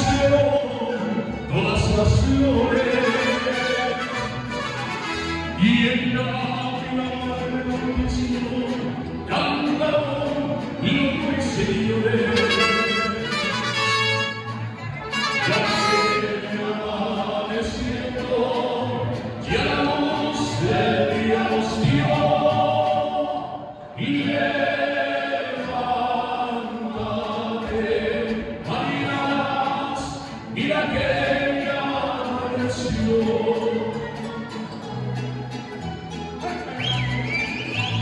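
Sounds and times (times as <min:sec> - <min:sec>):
mariachi band music: 0:00.0 - 0:38.0
voices singing: 0:15.4 - 0:35.2.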